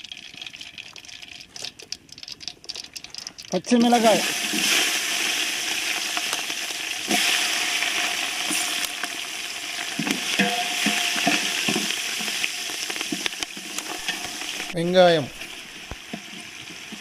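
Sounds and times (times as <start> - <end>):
spices sizzling in hot oil: 0.0 - 17.0
oil spitting pops: 0.4 - 3.6.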